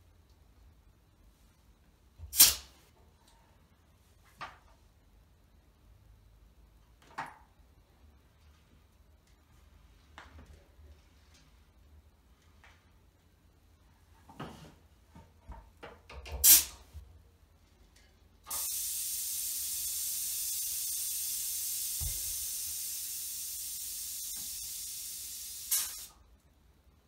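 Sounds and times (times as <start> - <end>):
air hissing from a vent: 2.2 - 2.9, 16.3 - 16.9, 18.4 - 26.3
air puff: 2.3 - 2.8, 16.4 - 16.8, 18.5 - 26.2
sharp burst of air: 2.3 - 2.8, 16.4 - 16.8, 18.5 - 26.2.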